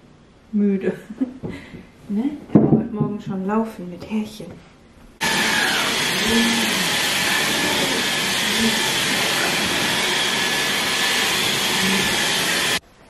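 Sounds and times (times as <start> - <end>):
vacuum cleaner running: 5.2 - 12.8.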